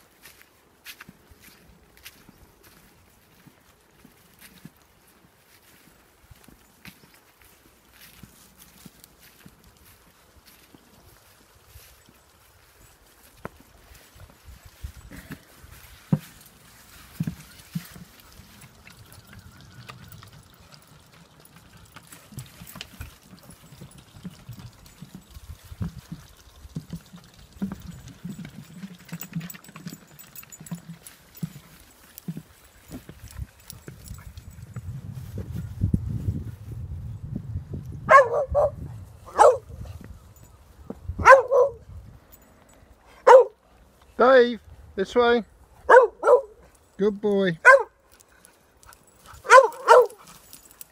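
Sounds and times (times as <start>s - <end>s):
footsteps on wooden boards: 13.2s - 19.2s, 25.6s - 34.5s
water trickling: 16.6s - 32.8s
dog barking: 38.1s - 39.7s, 41.2s - 41.8s, 43.2s - 43.6s, 45.8s - 46.7s, 47.6s - 48.0s, 49.4s - 50.3s.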